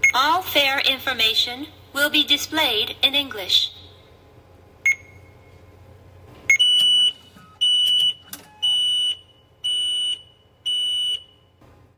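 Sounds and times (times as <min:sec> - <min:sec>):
ticket machine beeping: 0:06.5 - 0:09.3.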